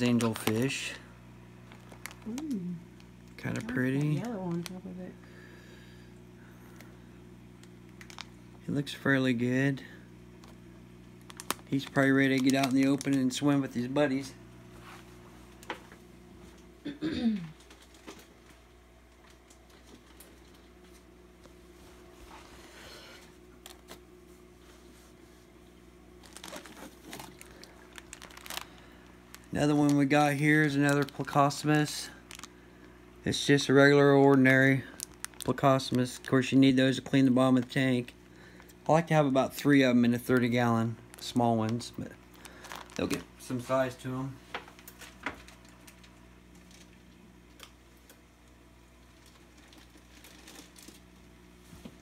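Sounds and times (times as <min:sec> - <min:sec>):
plastic bag crinkling: 0:00.0 - 0:05.1, 0:07.5 - 0:08.7, 0:10.4 - 0:14.3, 0:17.6 - 0:18.5, 0:26.1 - 0:47.7, 0:49.0 - 0:51.3
steady low hum: 0:00.0 - 0:52.0.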